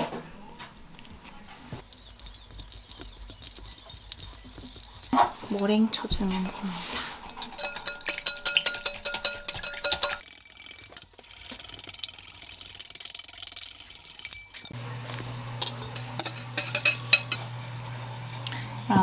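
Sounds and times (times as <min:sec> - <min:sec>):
glass bowl ringing: 0:07.4 - 0:10.6, 0:15.4 - 0:17.4
whisk clicking against glass bowl: 0:07.4 - 0:10.9.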